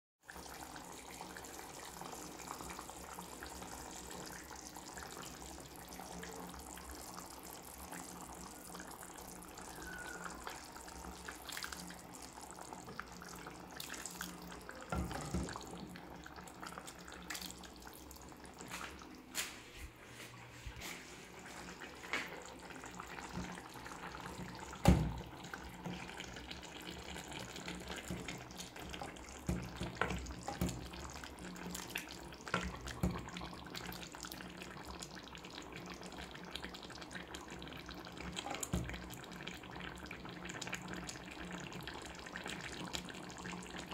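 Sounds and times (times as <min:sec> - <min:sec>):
gravy simmering and bubbling: 0:00.2 - 0:43.9.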